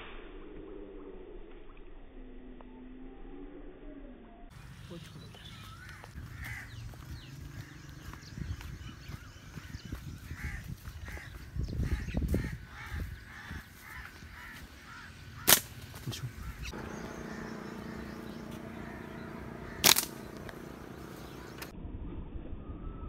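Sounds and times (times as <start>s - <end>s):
footsteps on a dirt path: 4.7s - 21.7s
crow cawing: 5.6s - 15.6s, 16.2s - 21.7s
steady low hum: 15.0s - 21.7s
sharp snap: 15.4s - 16.0s, 19.8s - 20.6s.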